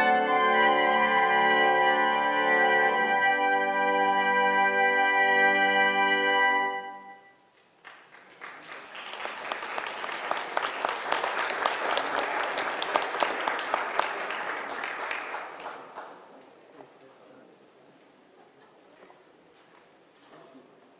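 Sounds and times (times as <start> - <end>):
organ and trumpets chord: 0.0 - 7.2
audience applauding: 7.7 - 16.6.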